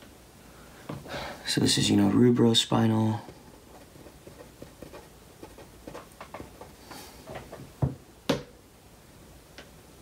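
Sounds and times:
marker pen scratching on paper: 3.2 - 6.8
pen tapping: 3.3 - 6.7.

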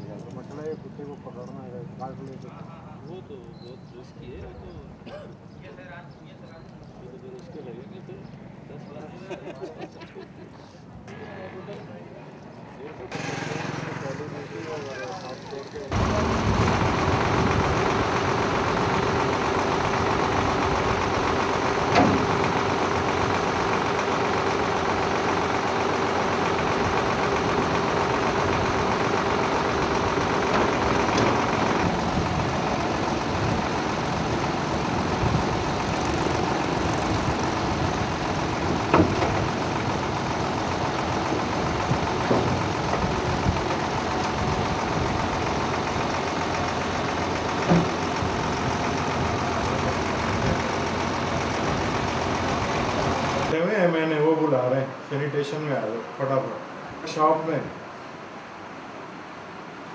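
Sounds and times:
truck engine idling: 12.6 - 53.6.

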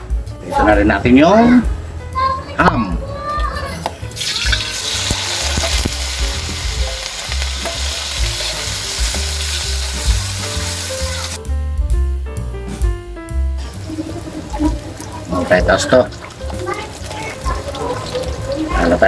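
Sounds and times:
ham sizzling in hot oil: 3.9 - 11.4, 13.6 - 19.0.

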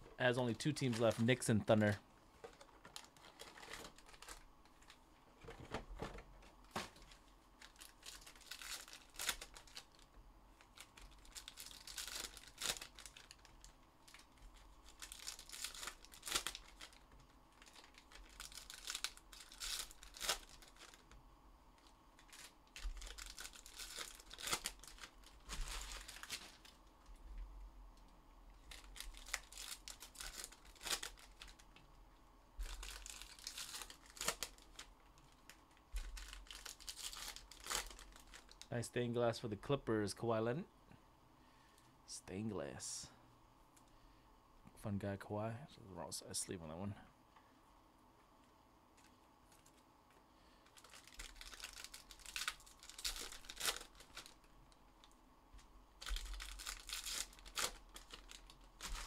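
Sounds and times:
plastic wrappers crinkling: 0.2 - 21.2, 21.8 - 27.0, 28.6 - 31.9, 32.6 - 38.7, 48.9 - 59.0
card packs being torn open: 2.5 - 5.0, 6.7 - 21.1, 21.8 - 26.8, 28.7 - 31.6, 32.6 - 34.9, 36.0 - 38.7, 50.6 - 54.4, 56.0 - 59.0.

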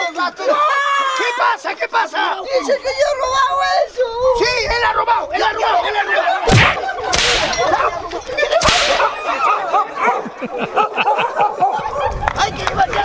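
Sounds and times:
whip lashes: 6.5 - 7.9, 8.6 - 9.4.

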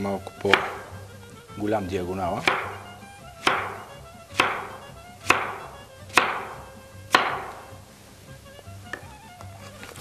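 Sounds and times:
knife knocking on cutting board: 2.4 - 2.9.

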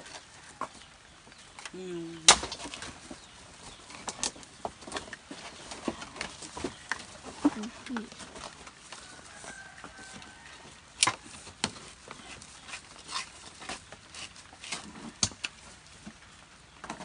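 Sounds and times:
hand tools scraping coconut shell: 11.0 - 15.6.

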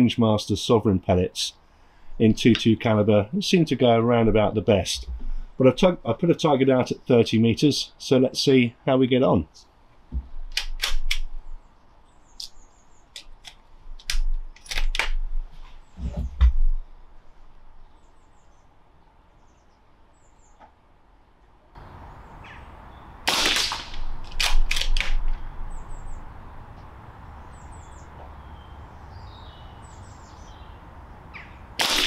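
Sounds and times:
rifle bolt metallic clacks: 10.5 - 11.3, 13.2 - 15.2, 23.6 - 25.4
air rifle shot: 23.3 - 25.4, 31.8 - 32.0.

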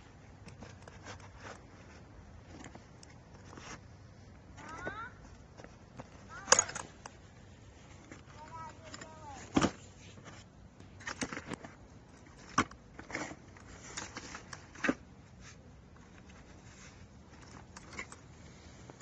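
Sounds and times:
metal garden tools clinking: 6.3 - 7.1.

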